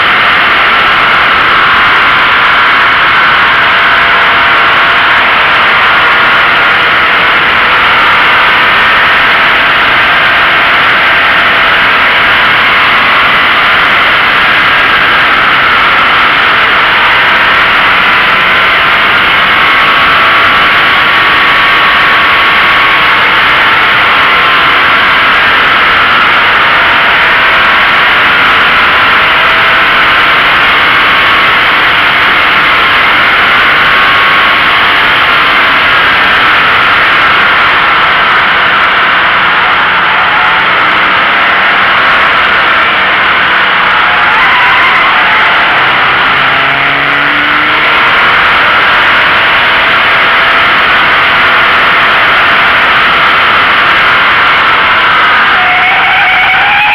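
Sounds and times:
wind and tyre noise: 0.0s - 55.5s
faint car engine: 0.0s - 55.6s.

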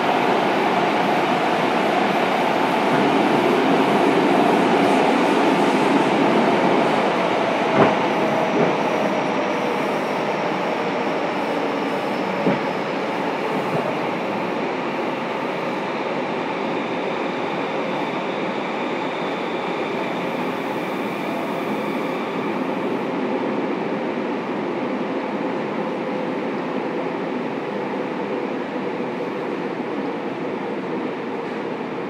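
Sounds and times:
train wheels rumbling on rail: 0.0s - 32.0s
sharp track knocks: 7.7s - 8.8s, 12.4s - 12.7s.

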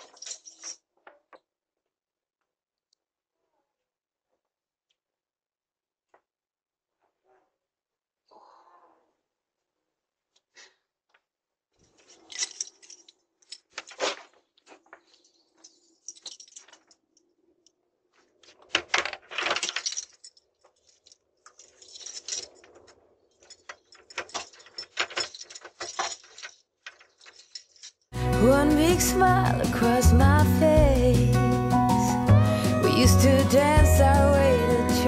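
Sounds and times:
keys jangling: 0.0s - 0.8s, 11.9s - 14.3s, 15.1s - 17.3s, 19.4s - 28.2s.

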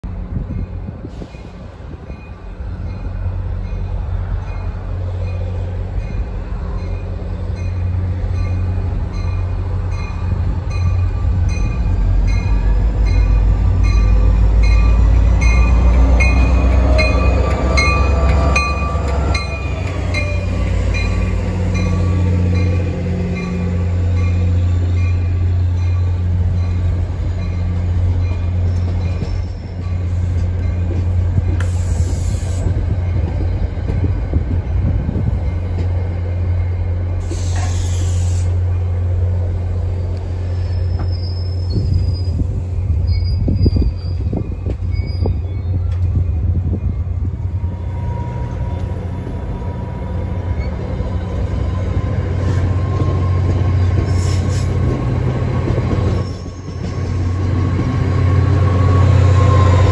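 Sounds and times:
diesel locomotive rumble: 0.0s - 59.9s
passenger coaches rolling past: 0.0s - 59.9s.

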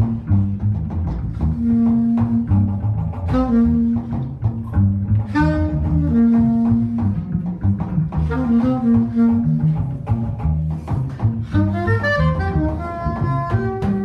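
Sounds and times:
drum kit: 0.0s - 14.0s
walking double bass: 0.0s - 14.0s
saxophone long notes: 3.3s - 4.3s, 5.3s - 7.3s, 8.3s - 10.0s, 11.5s - 14.0s.

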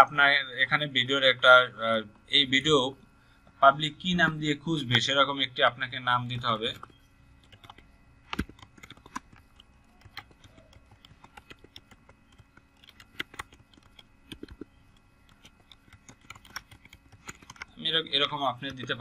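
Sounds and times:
keyboard key clicks: 6.7s - 17.7s.

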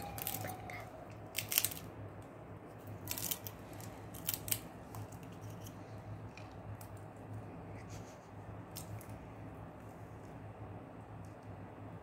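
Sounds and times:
parakeet cracking a peanut: 1.2s - 2.3s, 3.0s - 7.1s.

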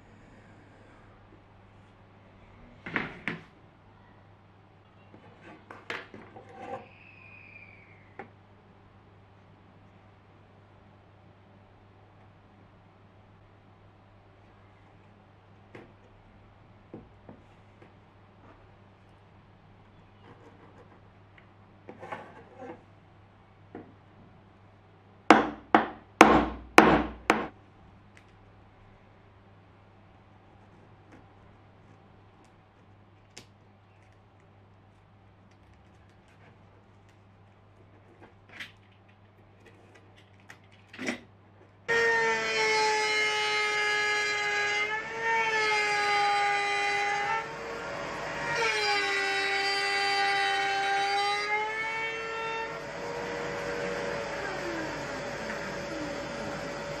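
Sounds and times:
faint pencil scratching: 20.2s - 21.0s
jigsaw whining: 41.9s - 57.0s.

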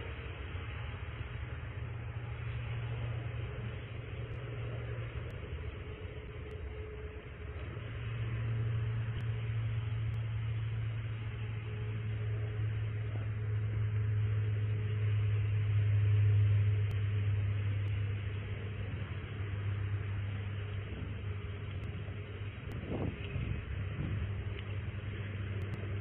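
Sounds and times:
vehicle engine idling: 0.0s - 26.0s.

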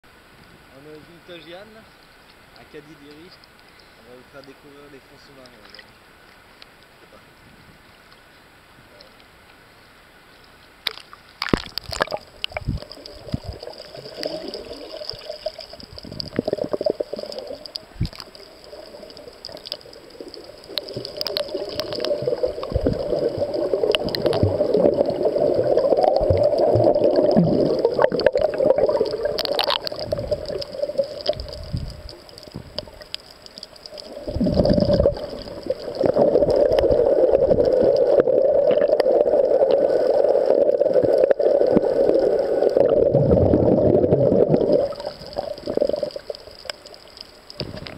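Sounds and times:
water sloshing and gurgling: 10.8s - 47.9s
muffled underwater rushing: 11.4s - 47.9s.

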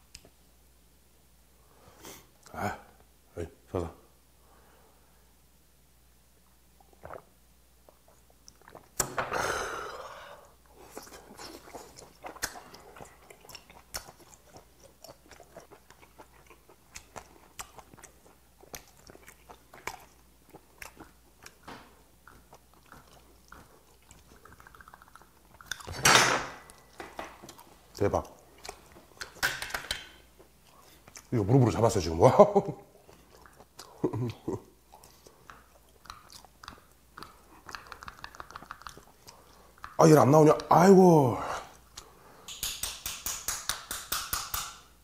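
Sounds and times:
person sipping drink: 6.8s - 7.3s
wet chewing mouth noises: 6.8s - 9.1s, 10.6s - 26.0s, 26.7s - 31.4s, 32.9s - 40.8s, 41.6s - 43.5s
breathy exhale: 9.3s - 10.5s.

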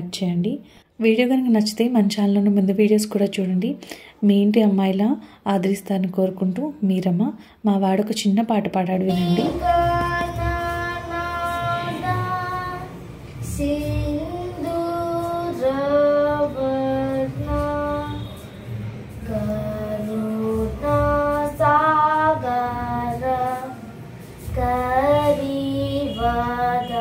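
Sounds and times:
boy singing: 9.1s - 18.4s, 19.2s - 27.0s.

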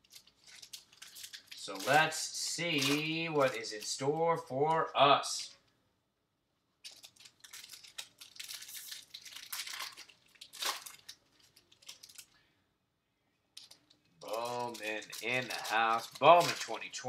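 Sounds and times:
foil wrapper tearing and crinkling: 0.0s - 4.1s, 6.8s - 12.4s, 13.6s - 17.0s.

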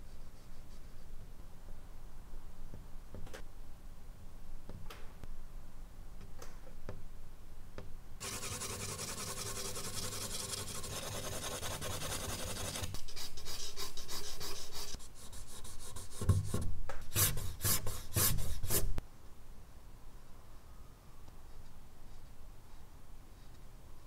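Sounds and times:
charcoal scratching on paper: 8.2s - 16.2s.

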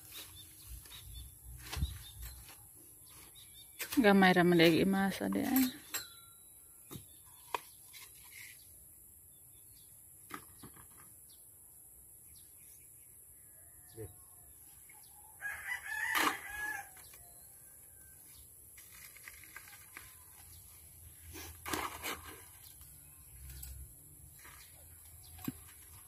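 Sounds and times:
rooster crowing: 15.4s - 17.0s.

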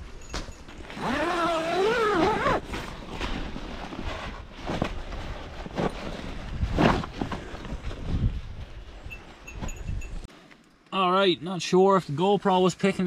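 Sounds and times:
tent canvas crunching and rustling: 0.7s - 10.0s.

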